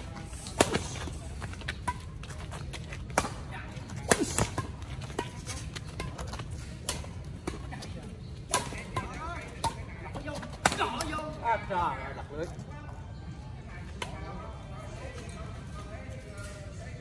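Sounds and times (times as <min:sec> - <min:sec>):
rackets striking shuttlecock: 0:03.0 - 0:07.7, 0:08.4 - 0:11.2.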